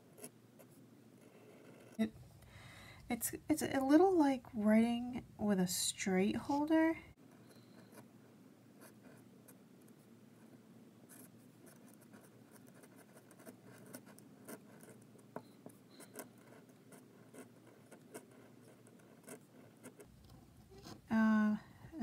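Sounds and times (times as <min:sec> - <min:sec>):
pen nib scratching paper: 0:11.1 - 0:15.1, 0:15.8 - 0:21.1.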